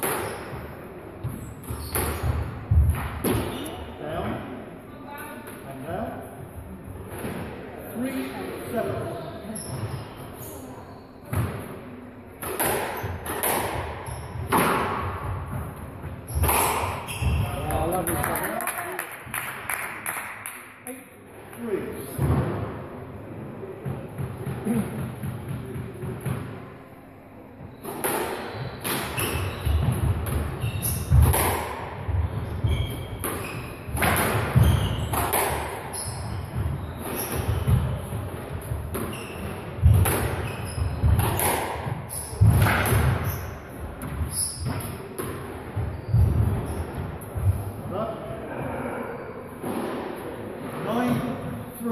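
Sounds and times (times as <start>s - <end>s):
squash ball hits echoing: 0.0s - 3.6s, 12.4s - 18.6s, 27.6s - 47.7s
shoes squeaking on wooden floor: 15.5s - 17.8s, 28.6s - 31.2s, 32.2s - 38.1s, 39.0s - 45.0s.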